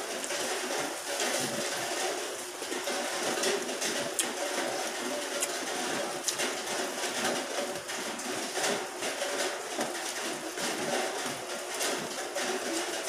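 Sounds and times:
chewing and smacking: 0:05.3 - 0:06.4.

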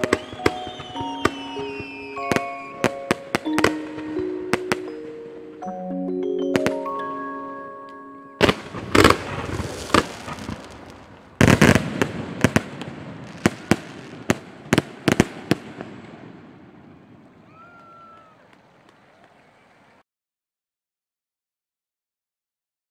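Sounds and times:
fireworks crackle: 0:00.0 - 0:05.2, 0:08.4 - 0:19.0
fireworks bursting: 0:00.0 - 0:05.7, 0:06.5 - 0:07.1, 0:08.4 - 0:18.9.

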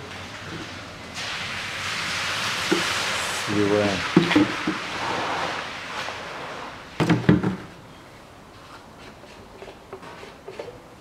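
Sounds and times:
hollow plastic knocks: 0:07.0 - 0:07.7.

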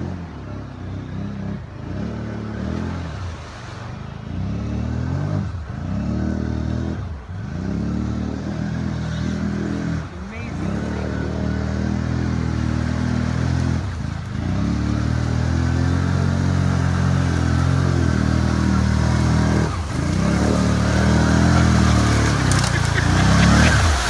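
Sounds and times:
atv engine revving under load: 0:04.2 - 0:24.0
water churning: 0:10.0 - 0:24.0.

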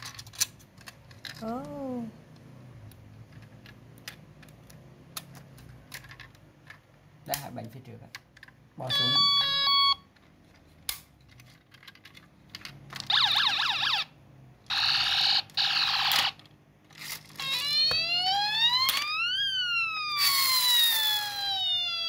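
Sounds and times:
fast yelping siren: 0:08.9 - 0:10.0, 0:13.1 - 0:16.1, 0:17.4 - 0:22.0
warbling siren: 0:08.9 - 0:10.0, 0:13.1 - 0:16.4, 0:17.4 - 0:22.0
slow rising and falling siren wail: 0:13.1 - 0:16.0, 0:17.4 - 0:22.0.

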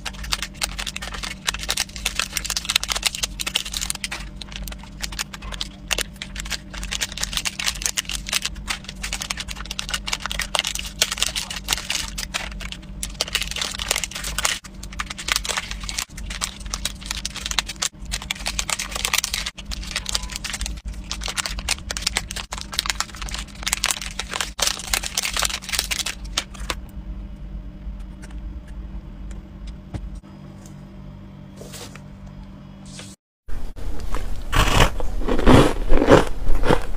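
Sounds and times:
foil sachets crinkling: 0:00.0 - 0:26.7
steady low hum: 0:00.0 - 0:36.9.

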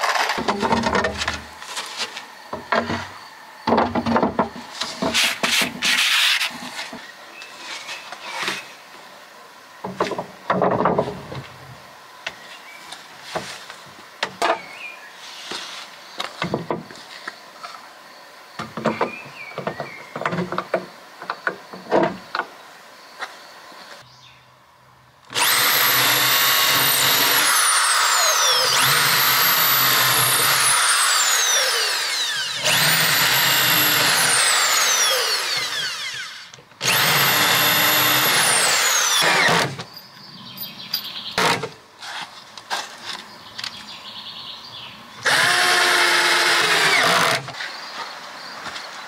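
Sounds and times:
power drill whining: 0:25.3 - 0:39.9, 0:45.2 - 0:47.6.

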